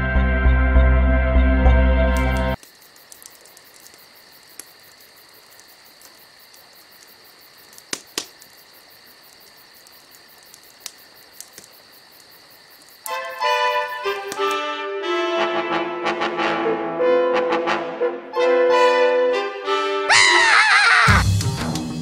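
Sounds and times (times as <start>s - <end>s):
crickets chirping: 2.1s - 15.6s, 20.1s - 21.2s
sharp clicks: 10.4s - 11.8s.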